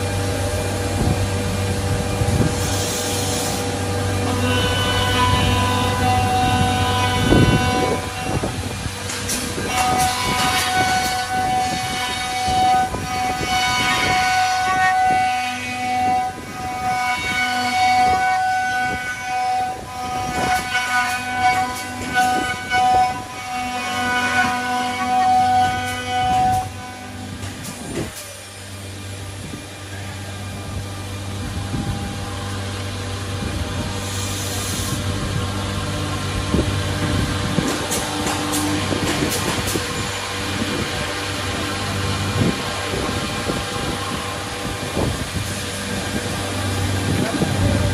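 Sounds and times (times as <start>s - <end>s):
boring machine spindle whine: 0.0s - 47.9s
wood cutting noise: 2.2s - 47.9s.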